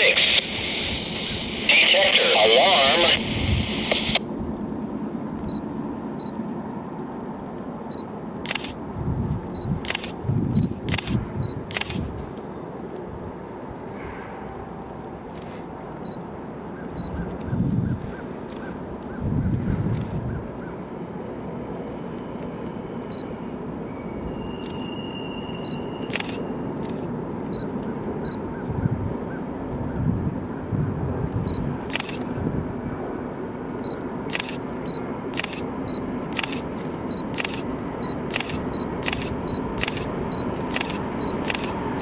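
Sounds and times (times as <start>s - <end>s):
diesel locomotive rumble: 0.0s - 42.0s
sharp click: 7.9s - 8.8s, 9.6s - 12.1s, 31.9s - 32.4s, 33.9s - 41.8s
camera shutter firing: 8.4s - 8.8s, 9.8s - 12.1s, 26.1s - 27.1s, 31.9s - 32.4s, 34.3s - 34.6s, 35.4s - 35.7s, 36.3s - 41.8s
faint short high beeps: 23.9s - 27.7s.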